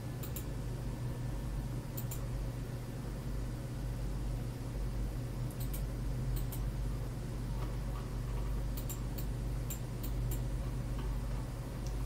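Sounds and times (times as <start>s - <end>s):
steady low hum: 0.0s - 12.0s
computer mouse clicks: 0.2s - 0.5s, 2.0s - 2.3s, 5.5s - 6.7s, 7.6s - 11.1s.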